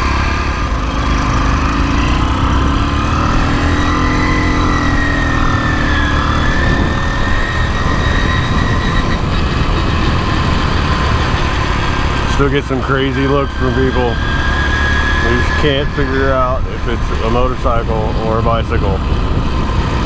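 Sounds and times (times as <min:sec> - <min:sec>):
wind rumble on microphone: 0:02.4 - 0:12.6, 0:15.3 - 0:20.0.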